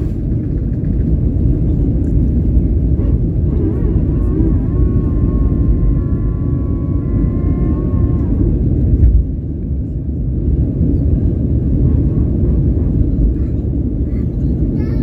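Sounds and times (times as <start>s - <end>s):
jet engine cabin rumble: 0.0s - 15.0s.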